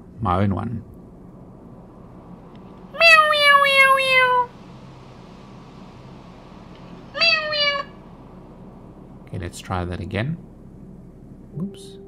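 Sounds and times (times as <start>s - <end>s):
cat meowing: 2.9s - 4.5s, 7.1s - 8.0s.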